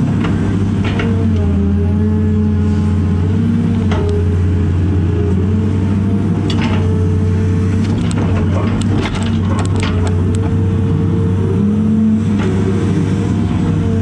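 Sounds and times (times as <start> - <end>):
excavator diesel engine running: 0.0 - 14.0
hydraulic whine: 0.0 - 14.0
knocks and rattles: 7.8 - 10.4.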